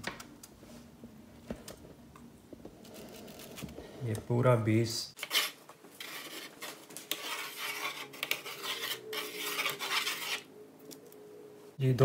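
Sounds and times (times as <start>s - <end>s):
baking equipment scraping and clinking: 5.2s - 10.5s.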